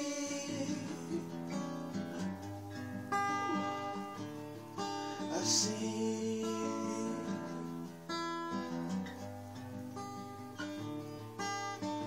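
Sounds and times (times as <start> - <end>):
guitar strumming chords: 0.0 - 12.0.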